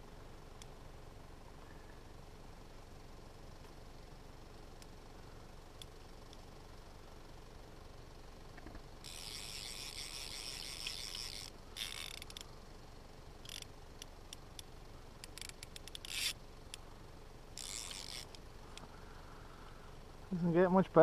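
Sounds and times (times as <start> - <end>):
fly reel ratchet buzzing: 8.5 - 20.0.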